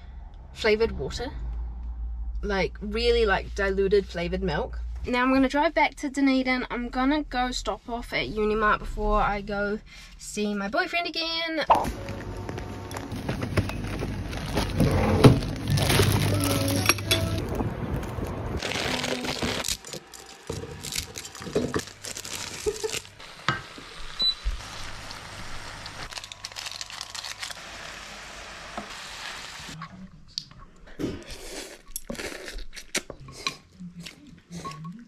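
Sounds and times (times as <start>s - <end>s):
sachet rustling: 13.0s - 17.4s, 18.0s - 23.2s, 26.1s - 27.9s
plastic packet crinkling and tearing: 13.9s - 23.2s, 24.8s - 28.0s.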